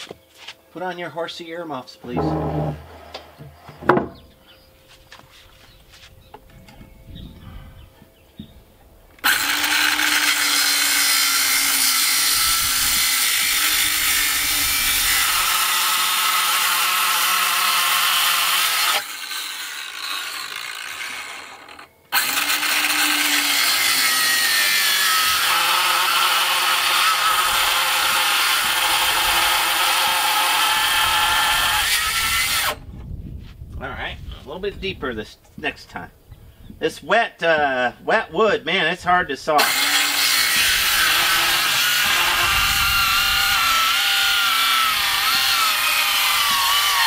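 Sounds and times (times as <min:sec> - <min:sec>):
circular saw cutting wood: 0:02.0 - 0:04.3, 0:09.2 - 0:32.8, 0:39.6 - 0:47.0.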